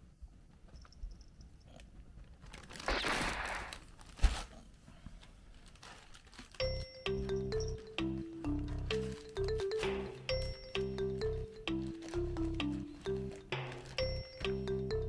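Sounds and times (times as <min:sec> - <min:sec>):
plastic wrapping crinkling: 0:02.3 - 0:03.0, 0:03.6 - 0:04.6, 0:05.2 - 0:08.0, 0:08.6 - 0:14.9
light music with xylophone: 0:06.6 - 0:15.0.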